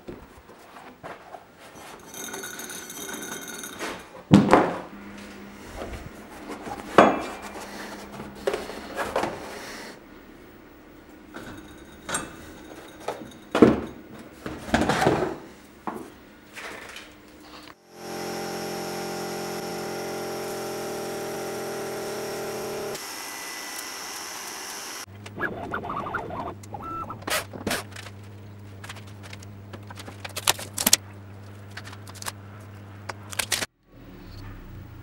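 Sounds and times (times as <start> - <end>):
low steady hum: 4.4 - 14.7
milling machine spindle whining: 17.9 - 25.1.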